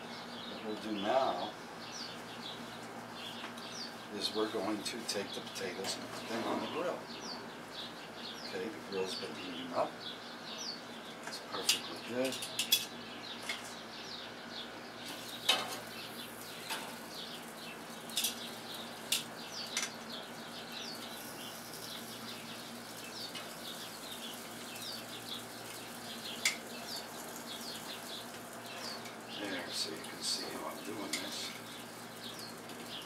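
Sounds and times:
small birds chirping: 0.0 - 33.0
potato slices sizzling on grill: 15.0 - 33.0
metal tongs clicking on grate: 18.1 - 18.4.

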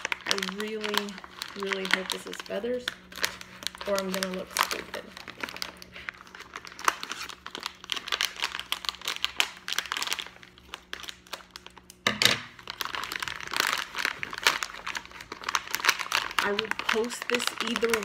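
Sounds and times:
plastic pouch crinkling: 0.0 - 18.0
scissors cutting plastic: 13.0 - 18.0.

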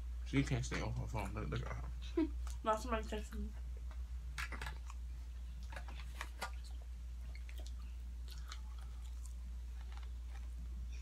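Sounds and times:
steady low hum: 0.0 - 11.0
chewing and crunching fried food: 3.8 - 11.0.

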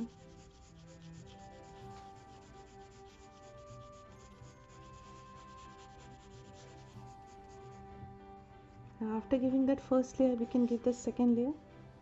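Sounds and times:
colour pencil shading on paper: 0.0 - 8.8
soft background music: 0.0 - 12.0.

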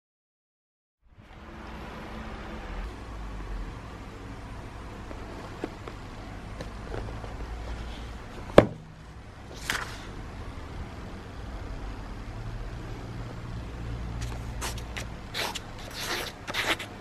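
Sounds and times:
pages turning swish: 9.5 - 10.1, 14.2 - 17.0
paper rustling: 9.5 - 10.1, 14.2 - 17.0.

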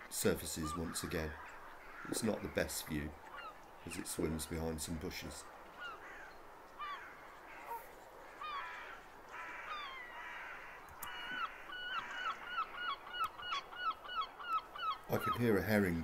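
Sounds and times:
gull calling: 5.8 - 15.7.

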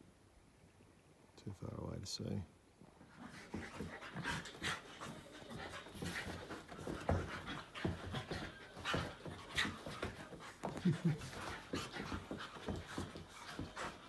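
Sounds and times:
dogs scuffling while play-wrestling: 2.9 - 14.0
dogs panting: 3.0 - 14.0.

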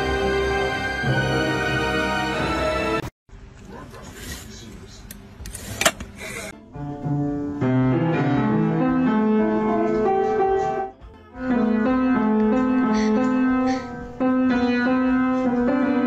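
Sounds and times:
piano music: 0.0 - 3.1, 6.6 - 16.0.

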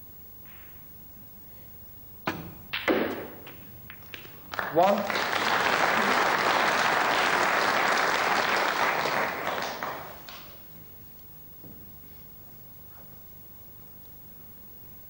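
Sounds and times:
audience applauding: 3.9 - 10.6.

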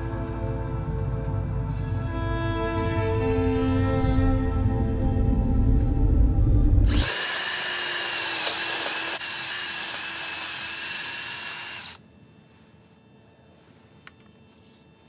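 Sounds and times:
drill whining into metal: 6.9 - 12.0.

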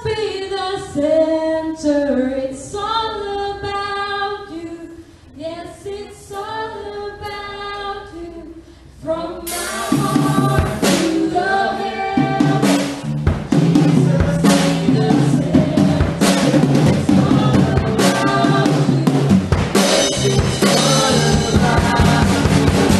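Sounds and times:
group singing worship song: 5.8 - 22.9
band playing: 9.5 - 22.9
drum kit with cymbal crash: 9.5 - 22.9.

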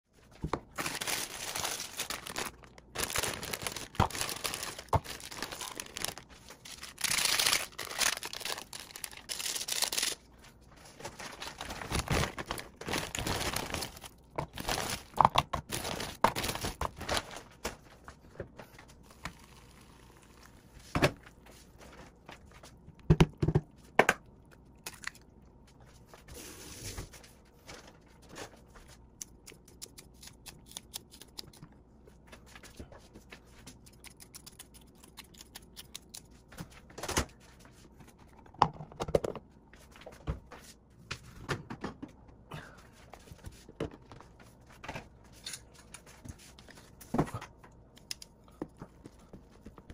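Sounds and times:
noodle packet crinkling: 0.7 - 10.3, 11.0 - 17.8.

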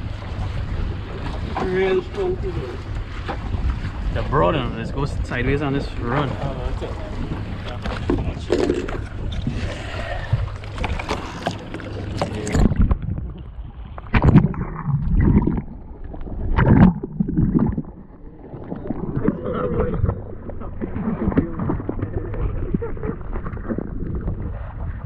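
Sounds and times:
low steady hum: 0.0 - 25.0
water noise: 0.0 - 25.0
wind: 0.0 - 25.0.

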